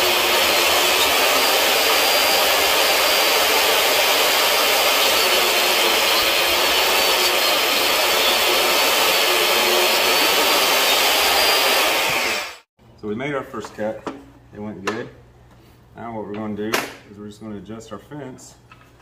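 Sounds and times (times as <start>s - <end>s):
table saw cutting wood: 0.0s - 12.7s.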